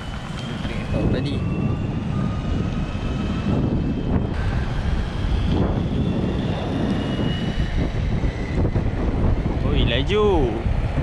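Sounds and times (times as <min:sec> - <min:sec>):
electric motor whine: 0:00.0 - 0:11.0
wheels rumbling on asphalt: 0:00.0 - 0:11.0.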